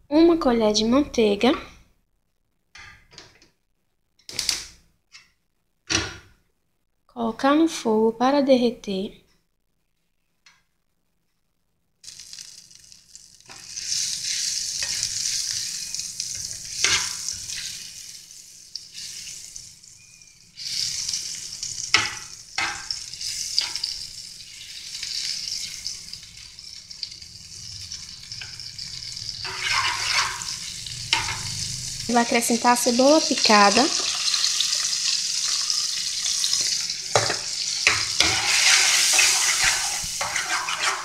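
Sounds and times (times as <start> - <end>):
butter sizzling in saucepan: 12.0 - 41.0.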